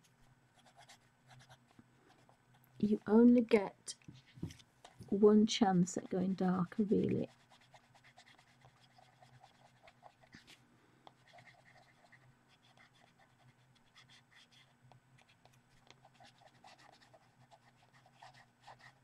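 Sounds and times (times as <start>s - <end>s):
low electrical hum: 0.0s - 19.0s
pastel rubbing on paper: 6.3s - 19.0s.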